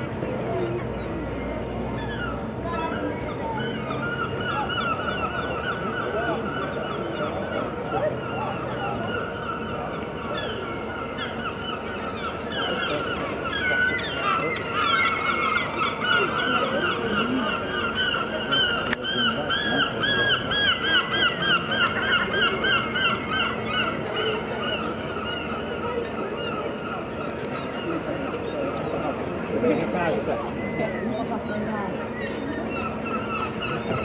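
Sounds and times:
gulls calling: 0:00.0 - 0:34.0.

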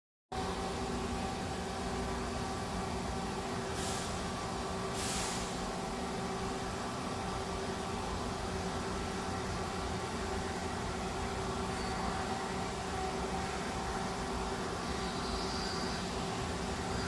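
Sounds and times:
steady mechanical hum: 0:00.3 - 0:17.0
short bursts of hiss: 0:03.7 - 0:05.7.

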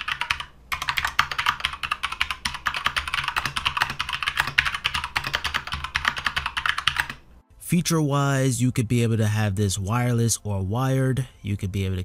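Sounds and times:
mechanical keyboard typing: 0:00.0 - 0:07.2.

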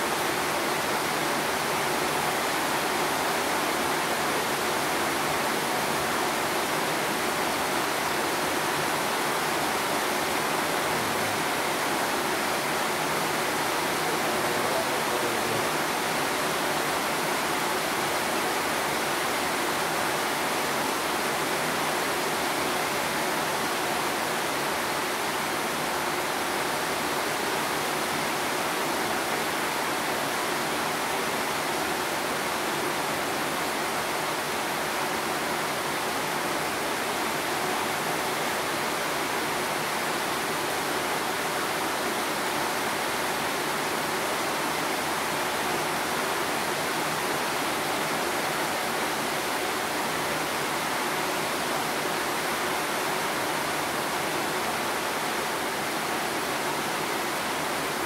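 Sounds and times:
rain hissing: 0:00.0 - 0:22.1.

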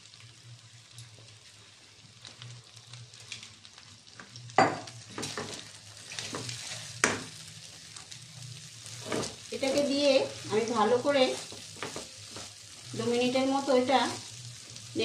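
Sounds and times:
rice sizzling in oil: 0:00.0 - 0:15.0.

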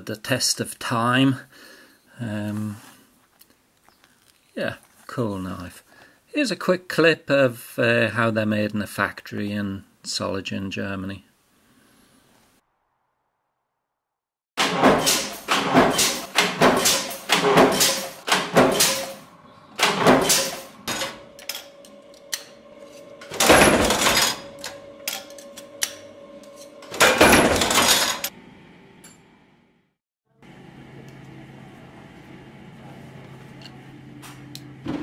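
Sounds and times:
metal clanks of power press: 0:14.6 - 0:19.2, 0:19.8 - 0:22.6, 0:23.2 - 0:28.3
harsh machine bursts: 0:14.6 - 0:28.3
steady machine hum: 0:14.6 - 0:34.9.

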